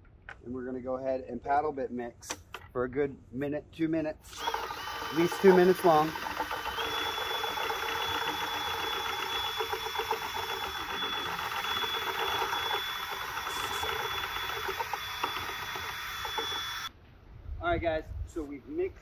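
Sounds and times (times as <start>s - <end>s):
cordless drill motor whine: 4.3s - 16.9s
paddle mixer churning in bucket: 4.3s - 16.9s.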